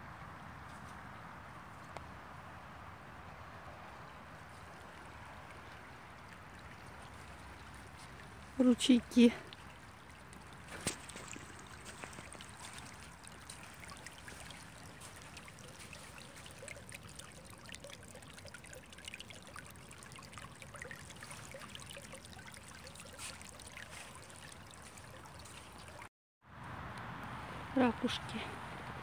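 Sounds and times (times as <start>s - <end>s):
water trickling over pebbles: 3.4s - 26.1s.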